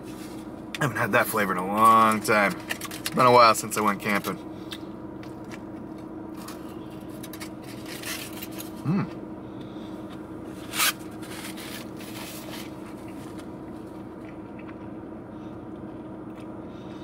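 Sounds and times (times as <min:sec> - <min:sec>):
steady low hum: 0:00.0 - 0:17.0
person chewing food: 0:13.0 - 0:17.0.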